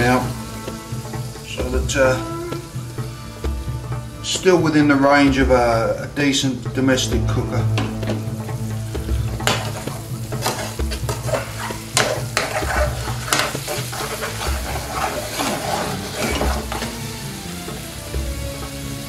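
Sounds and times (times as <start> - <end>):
sauce sizzling: 0.0 - 19.0
metal spoon scraping a pan: 9.4 - 16.9.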